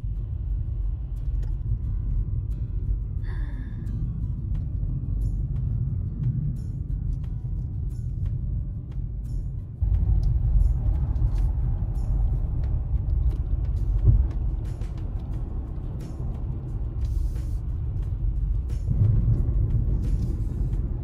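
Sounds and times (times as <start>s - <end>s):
road noise rumble in car cabin: 0.0s - 21.0s.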